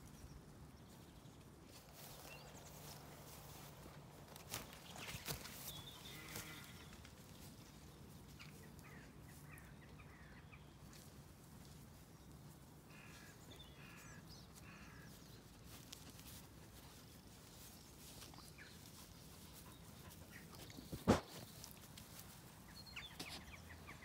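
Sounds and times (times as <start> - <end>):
field ambience: 0.2 - 24.0
faint bird calls: 4.9 - 7.0, 12.9 - 15.5.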